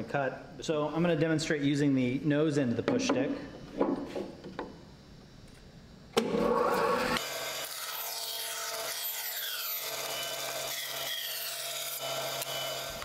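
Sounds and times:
band saw cutting wood: 6.2 - 13.0.

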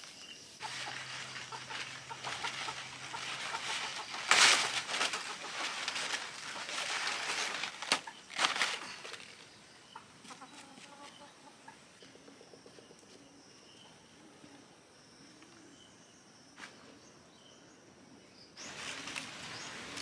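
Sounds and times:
loud rustling: 0.6 - 9.4
chickens clucking: 0.6 - 13.3.

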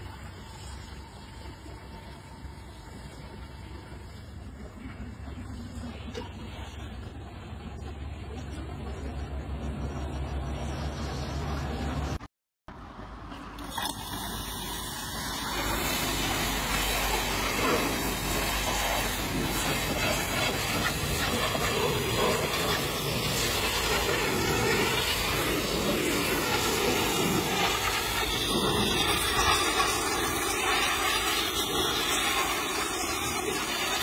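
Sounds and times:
pressure washer spraying water: 13.6 - 34.0.

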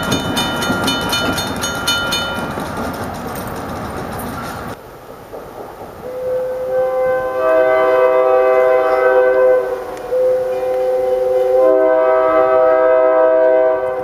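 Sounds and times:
passing train rumble: 0.0 - 14.0
train air horn blasts: 6.1 - 14.0.

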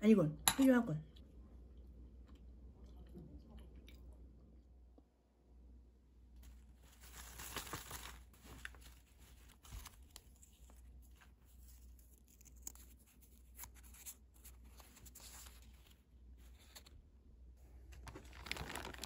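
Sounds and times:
plastic packaging crinkling: 6.4 - 16.9, 17.7 - 19.0.

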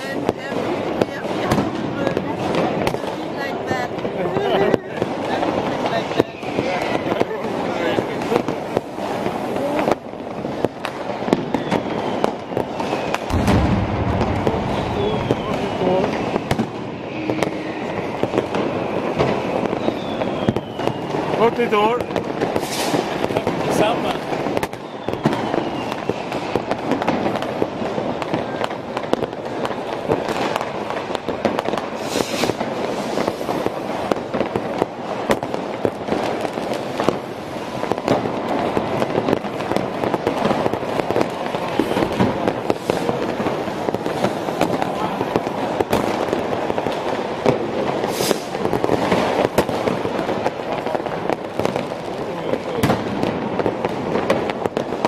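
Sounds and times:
fireworks and firecrackers crackling: 0.0 - 55.0.

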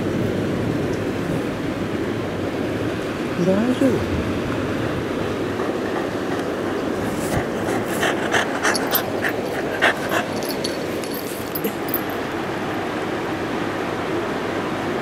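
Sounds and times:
dog panting: 5.3 - 12.2.

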